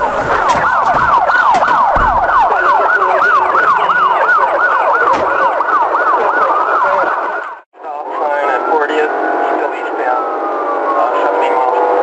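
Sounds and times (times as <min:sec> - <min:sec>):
police siren yelping: 0:00.0 - 0:12.0.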